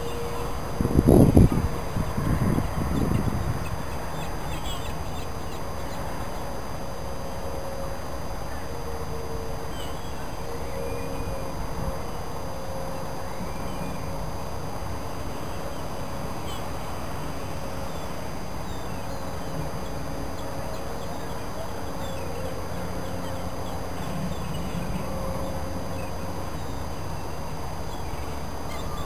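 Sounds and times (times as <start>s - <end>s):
crane machinery humming: 0.0s - 29.0s
faint steady tone: 0.0s - 29.0s
bird calls: 2.4s - 6.5s, 17.9s - 29.0s.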